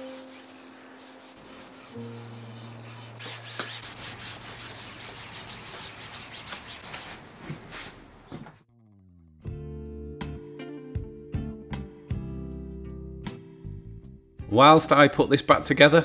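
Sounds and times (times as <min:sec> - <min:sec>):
cloth rubbing on wood: 0:00.0 - 0:08.3.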